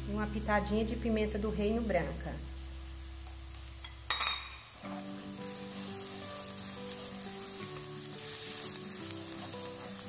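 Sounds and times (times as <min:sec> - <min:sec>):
onion sizzling in a pan: 0:00.0 - 0:10.0
background music of held notes: 0:04.8 - 0:10.0.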